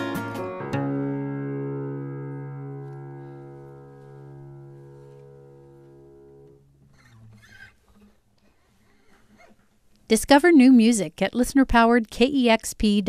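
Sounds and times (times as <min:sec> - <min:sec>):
acoustic guitar chord ringing: 0:00.0 - 0:07.5
faint rustle: 0:02.8 - 0:09.9.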